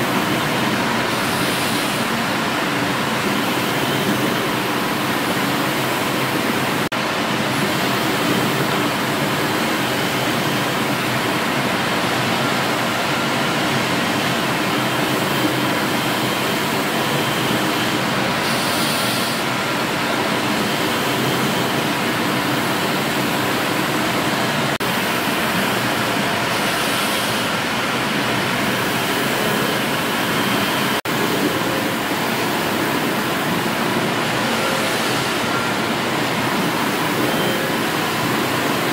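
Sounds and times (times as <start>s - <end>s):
steam hissing: 0.0s - 6.8s, 14.8s - 24.1s, 24.8s - 38.9s
steam engines running: 0.0s - 38.9s.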